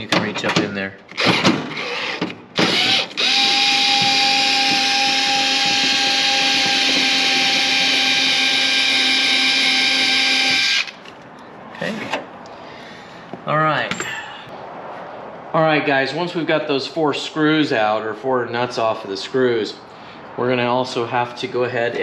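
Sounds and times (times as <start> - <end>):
power driver motor whine: 1.2 - 11.0.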